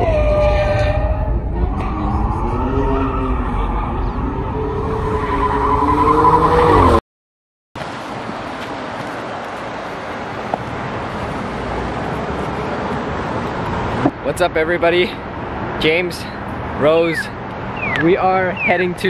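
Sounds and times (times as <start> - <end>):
car engine revving: 0.0 - 7.0
street traffic noise: 0.0 - 7.0, 7.8 - 19.0.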